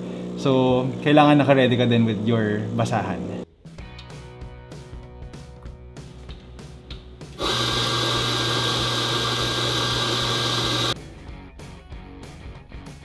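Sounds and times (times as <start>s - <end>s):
coffee grinder motor whirring: 7.4s - 11.0s.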